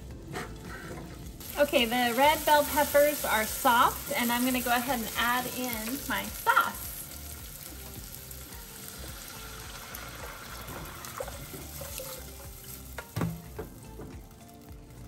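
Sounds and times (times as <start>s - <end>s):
light sizzle: 0.0s - 15.0s.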